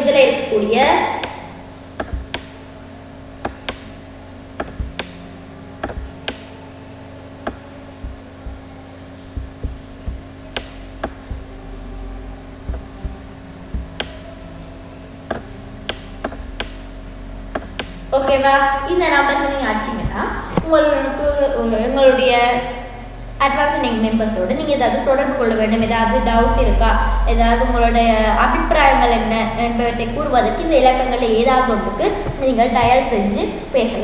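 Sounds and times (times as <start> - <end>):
low electrical hum: 0.0 - 34.0
stylus tapping on tablet: 9.3 - 11.5.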